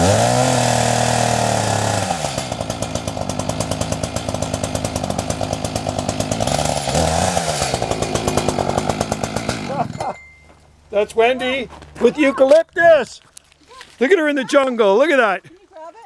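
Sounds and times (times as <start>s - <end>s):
chainsaw cutting wood: 0.0s - 10.2s.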